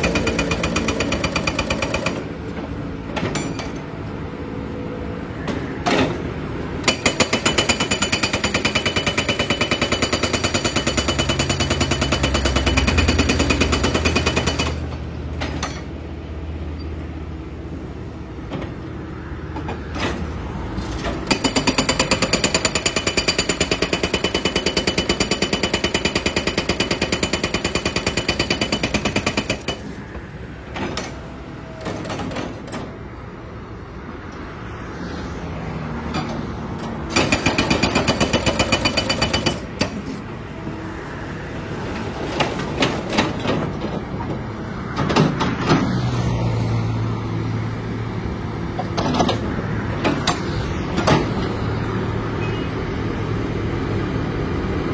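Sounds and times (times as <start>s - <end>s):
hydraulic breaker hammering: 0.0s - 2.3s, 37.1s - 40.1s.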